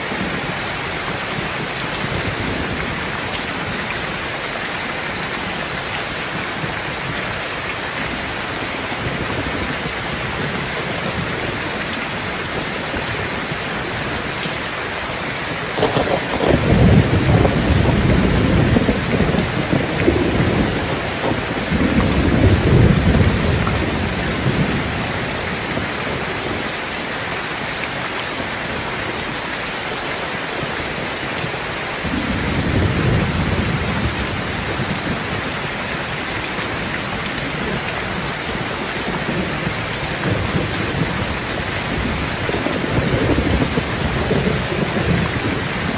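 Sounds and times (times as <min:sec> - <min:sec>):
heavy rain falling: 0:00.0 - 0:45.9
thunder rumbling: 0:15.5 - 0:26.6, 0:32.0 - 0:45.9.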